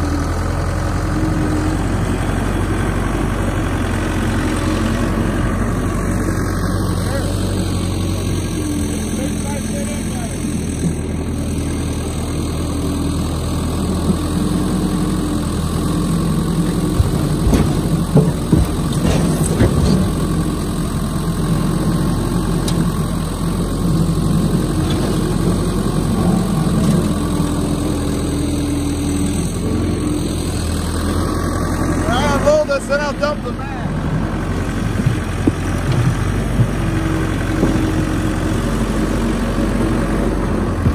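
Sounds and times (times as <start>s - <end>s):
skid steer engine running: 0.0s - 40.9s
firewood blocks thudding into truck bed: 16.9s - 20.1s.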